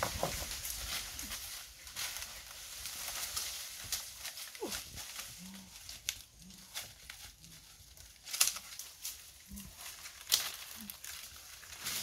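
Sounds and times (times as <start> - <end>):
footsteps crunching on dry leaves: 0.0 - 12.0.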